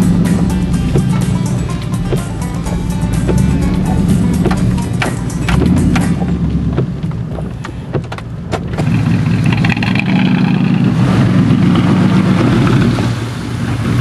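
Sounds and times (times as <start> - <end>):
pickup truck engine revving: 0.0 - 14.0
wood cracking and snapping: 1.8 - 10.6.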